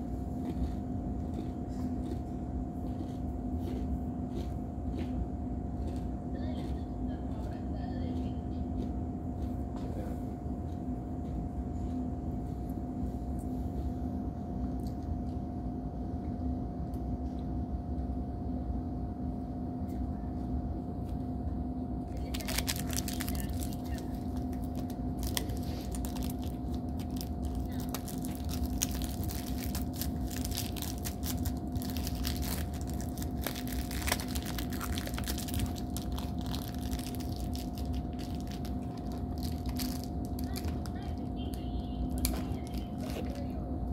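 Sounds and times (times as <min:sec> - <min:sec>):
steady low hum: 0:00.0 - 0:43.9
plastic wrappers crinkling: 0:22.1 - 0:43.5.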